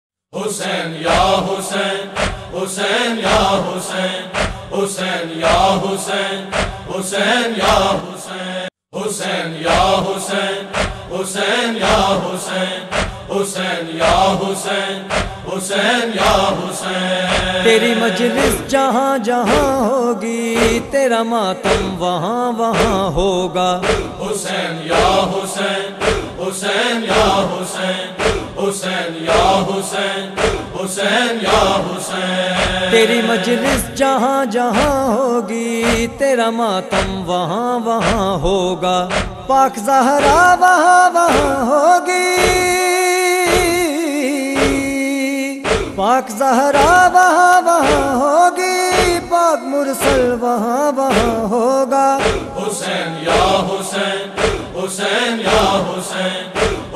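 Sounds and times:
chorus of voices chanting: 0.3s - 56.9s
deep rhythmic thumps: 1.1s - 8.0s, 9.7s - 12.2s, 12.9s - 18.8s, 19.5s - 19.9s, 20.6s - 21.0s, 21.6s - 22.1s, 22.8s - 34.0s, 34.7s - 35.2s, 35.8s - 36.2s, 36.9s - 37.4s, 38.0s - 39.6s, 40.2s - 40.6s, 41.3s - 41.7s, 42.4s - 42.8s, 43.5s - 43.9s, 44.6s - 45.0s, 45.6s - 46.1s, 46.8s - 47.1s, 47.8s - 48.2s, 48.9s - 49.3s, 50.0s - 50.4s, 51.1s - 51.5s, 52.2s - 52.7s, 53.3s - 53.7s, 54.3s - 55.9s, 56.6s - 56.9s
hands striking chests: 39.1s - 39.4s.

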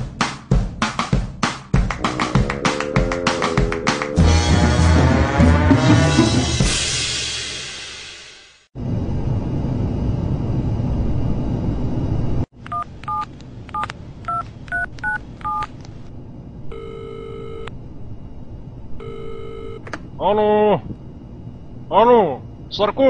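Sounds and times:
phone ringback tone: 16.7s - 17.7s, 19.0s - 19.8s.

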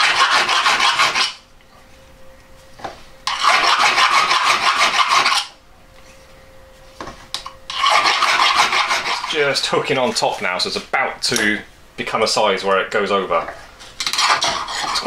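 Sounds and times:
file rasping on metal: 0.0s - 1.4s, 3.3s - 5.5s, 7.7s - 9.4s, 14.0s - 15.0s.

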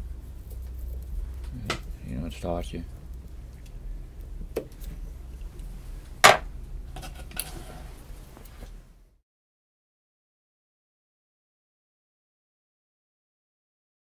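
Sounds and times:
low hum: 0.0s - 9.2s.

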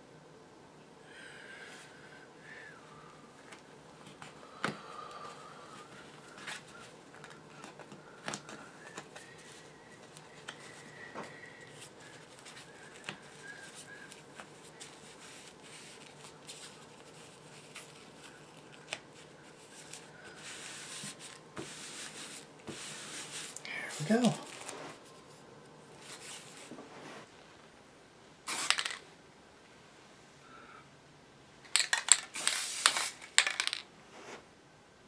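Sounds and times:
paper rustling: 6.2s - 25.4s, 26.0s - 27.2s.

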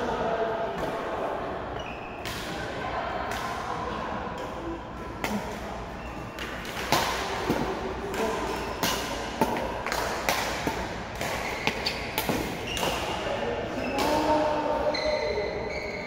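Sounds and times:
racket striking shuttlecock: 6.4s - 13.1s.

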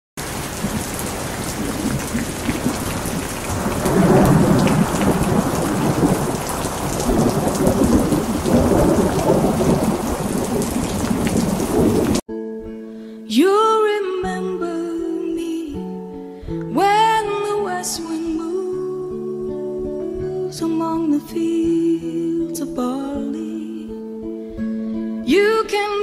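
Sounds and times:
heavy rain: 0.2s - 12.2s
rolling thunder: 0.2s - 12.2s.

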